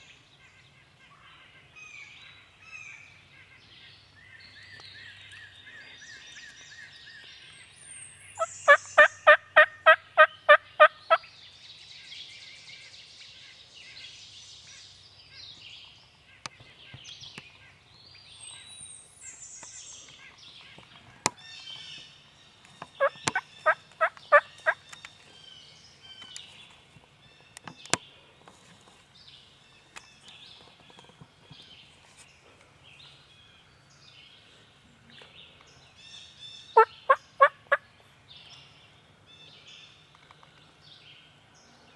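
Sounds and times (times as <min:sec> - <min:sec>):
songbirds singing: 0:00.0 - 0:41.9
wild turkey yelping: 0:08.4 - 0:11.2, 0:23.0 - 0:24.8, 0:36.8 - 0:37.8.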